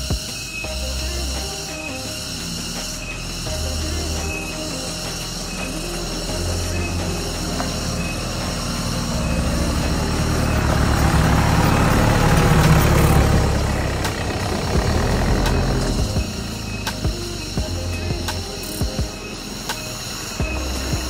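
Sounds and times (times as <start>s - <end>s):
vehicle engine running: 0.0s - 21.0s
sharp clicks: 16.8s - 17.6s.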